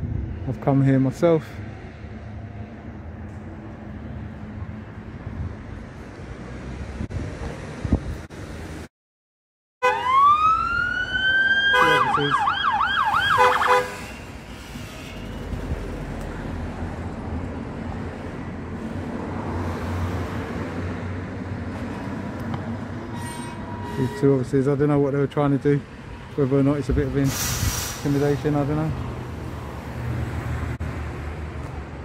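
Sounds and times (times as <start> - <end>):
car engine and tyres: 0.0 - 8.9, 12.0 - 32.0
police siren: 9.8 - 14.2.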